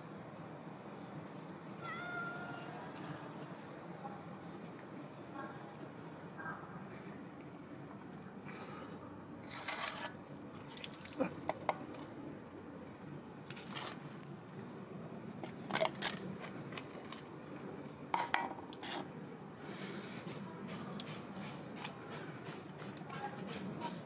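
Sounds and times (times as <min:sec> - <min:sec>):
water dripping: 0:10.6 - 0:11.8.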